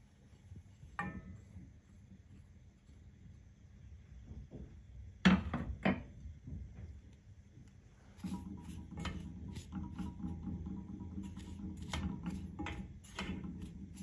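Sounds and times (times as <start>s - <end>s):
spatula scraping sugar in saucepan: 8.0s - 14.0s.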